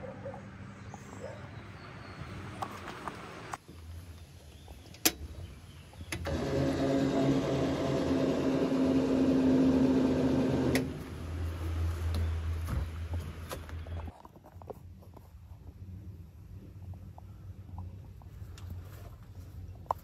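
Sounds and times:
small motor humming: 0:06.2 - 0:11.0.

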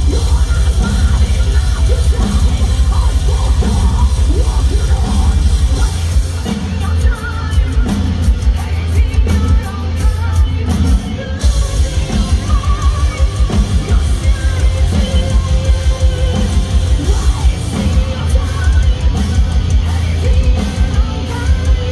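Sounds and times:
live heavy metal band: 0:00.0 - 0:21.9
person singing: 0:00.0 - 0:21.9.

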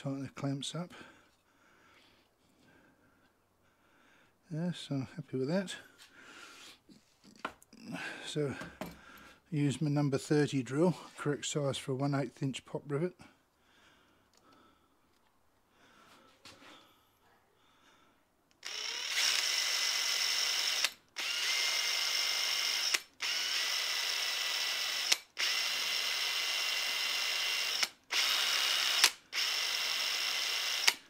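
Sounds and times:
power drill drilling metal: 0:18.6 - 0:31.0.

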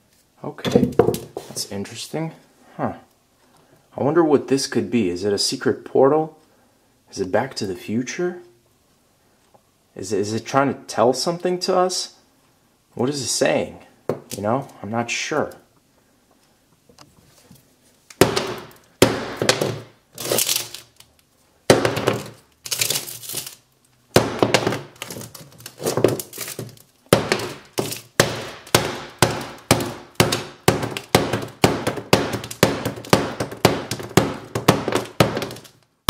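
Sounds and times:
hammer smashing glass: 0:18.2 - 0:20.8, 0:21.7 - 0:23.6, 0:24.2 - 0:35.7.

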